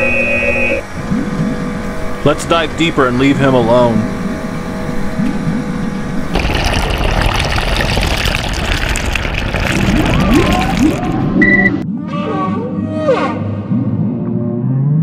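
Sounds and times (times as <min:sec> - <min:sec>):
water churning underwater: 0:06.3 - 0:11.8.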